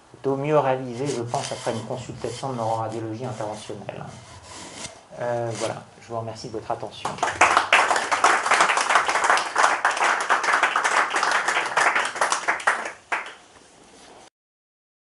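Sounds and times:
audience applauding: 7.2 - 13.4.

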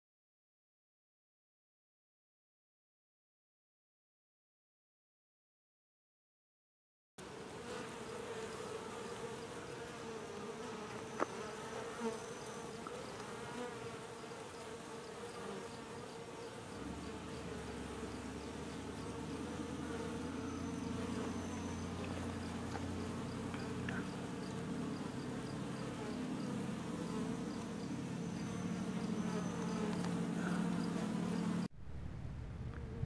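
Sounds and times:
honeybees buzzing: 7.2 - 31.7
deeper louder hum: 16.8 - 33.0.

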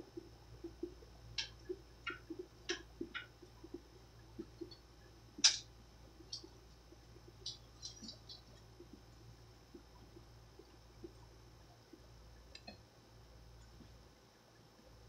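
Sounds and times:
fidget spinner ticking on wood: 0.1 - 11.3.

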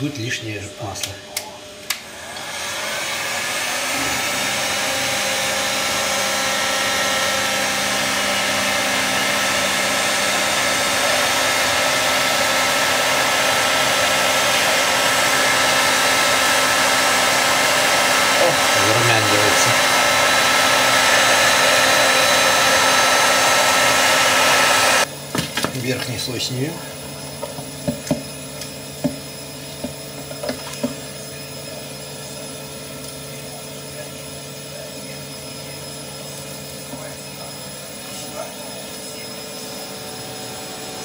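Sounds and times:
heat gun blowing air: 1.8 - 25.1.

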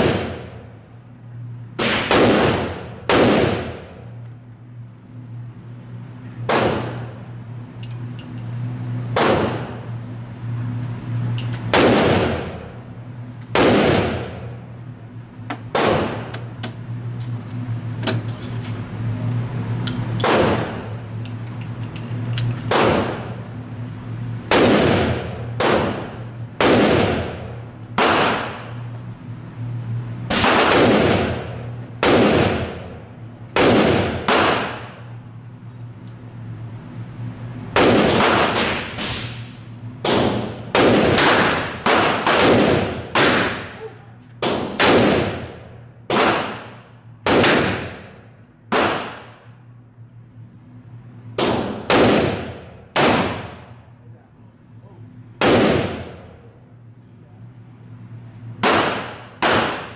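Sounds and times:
handgun shots indoors: 0.0 - 0.6, 1.8 - 3.9, 6.4 - 7.2, 9.1 - 9.8, 19.9 - 20.9, 22.3 - 23.3, 24.5 - 28.7, 30.3 - 32.8, 33.5 - 35.0, 37.7 - 48.1, 48.7 - 49.5, 51.4 - 53.6, 55.4 - 56.3, 58.6 - 59.9.

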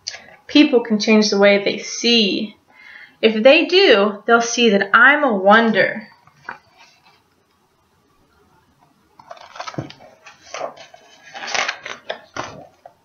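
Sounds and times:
book pages rustling: 6.2 - 7.3, 8.8 - 13.0.

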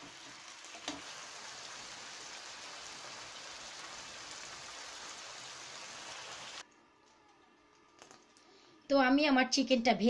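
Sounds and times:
chicken sizzling in hot oil: 0.0 - 6.6.

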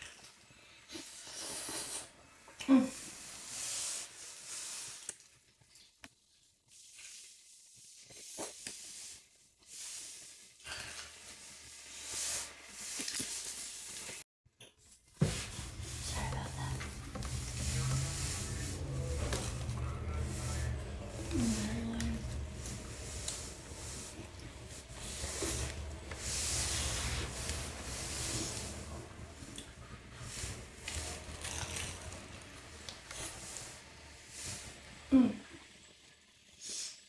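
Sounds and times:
low steady hum: 15.3 - 34.3.

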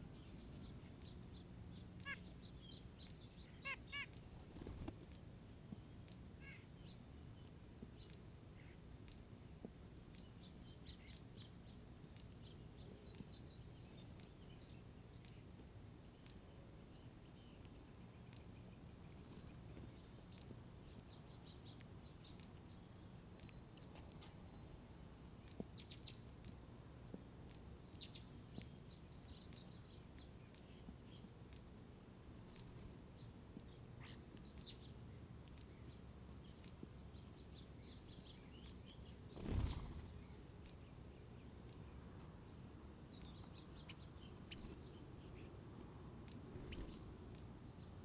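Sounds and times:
high-pitched bird chirps: 2.0 - 4.3.

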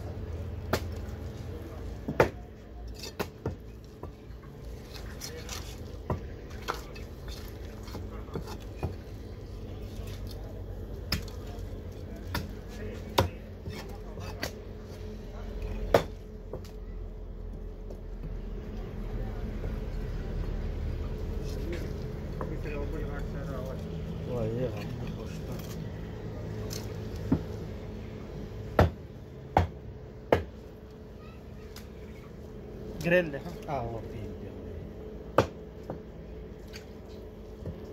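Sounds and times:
steady low hum: 0.0 - 37.9
knife chopping on wooden block: 2.0 - 2.4, 35.4 - 36.0.

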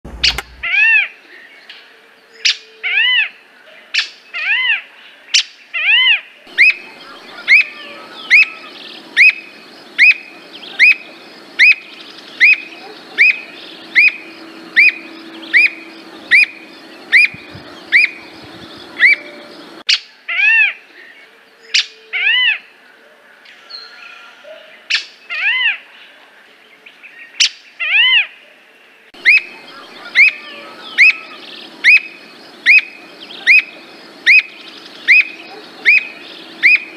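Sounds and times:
bird whistled calls: 6.5 - 19.6, 29.2 - 36.9.

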